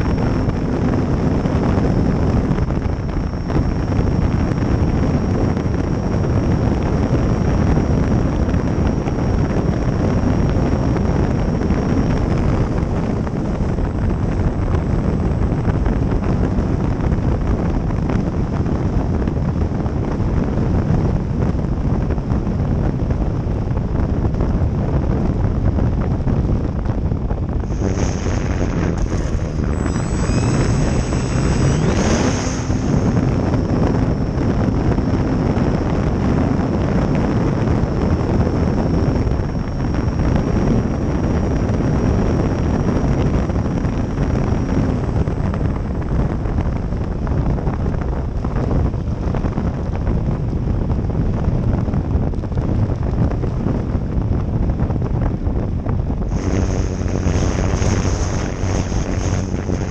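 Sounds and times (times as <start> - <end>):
wind buffeting microphone: 0.0 - 59.9
model plane motor whining: 27.6 - 35.8, 56.3 - 59.9.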